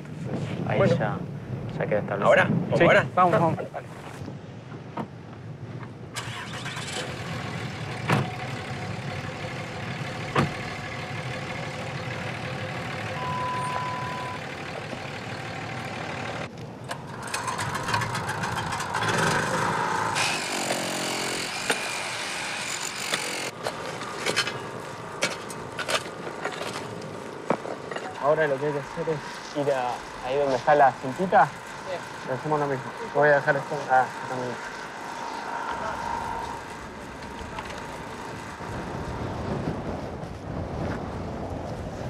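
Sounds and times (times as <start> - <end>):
vehicle engine running: 7.0 - 20.2, 27.2 - 40.4.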